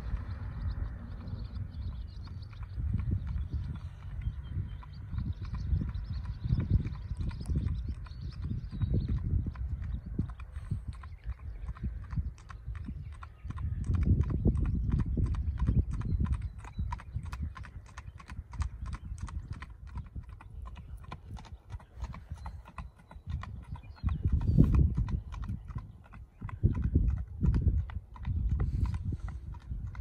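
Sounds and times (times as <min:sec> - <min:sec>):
low rumble: 0:00.0 - 0:17.0
horse hooves clip-clopping on road: 0:00.0 - 0:30.0.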